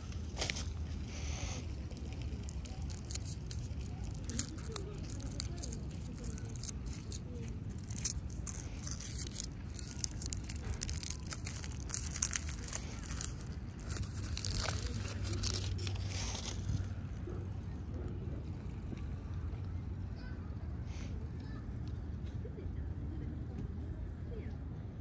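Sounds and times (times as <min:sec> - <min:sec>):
plastic packaging crinkling: 0:00.0 - 0:16.9.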